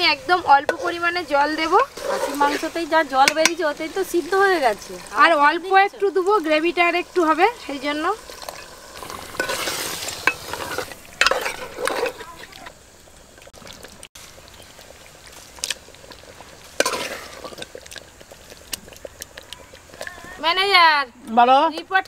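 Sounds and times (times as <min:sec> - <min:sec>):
curry sizzling in a metal pot: 0:00.0 - 0:22.0
metal ladle scraping a pot: 0:00.4 - 0:03.6, 0:08.2 - 0:12.6, 0:16.6 - 0:18.0.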